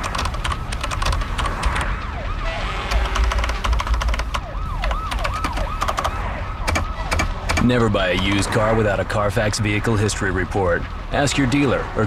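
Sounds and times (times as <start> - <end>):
keyboard typing clicks: 0.0 - 1.9, 2.9 - 8.3
emergency vehicle siren: 0.0 - 9.1.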